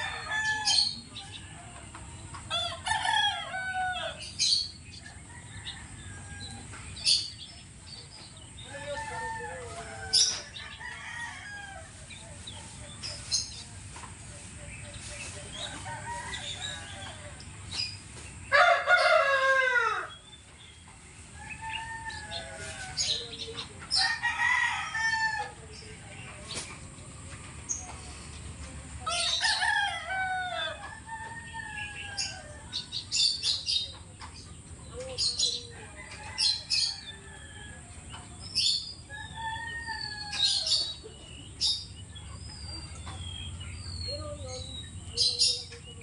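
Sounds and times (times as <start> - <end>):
rooster crowing: 0.0 - 1.9, 2.5 - 4.3, 8.6 - 12.0, 18.5 - 20.2, 21.4 - 23.3, 24.0 - 25.6, 29.1 - 32.8, 35.7 - 38.0, 39.1 - 40.8
chicken calls: 0.0 - 46.0.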